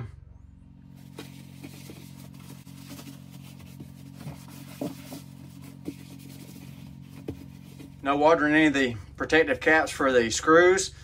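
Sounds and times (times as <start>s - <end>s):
steady low hum: 0.0s - 11.0s
paper towel wiping plastic: 0.9s - 8.2s.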